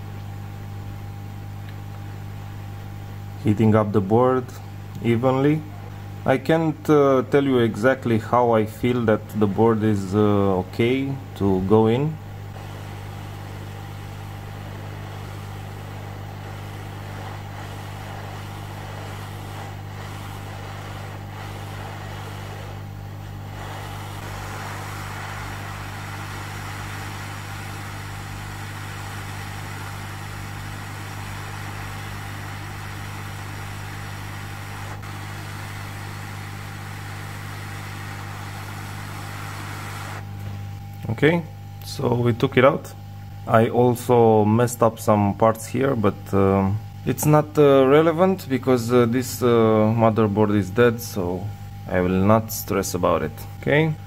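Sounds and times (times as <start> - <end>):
hot air blower hissing: 4.6 - 40.8.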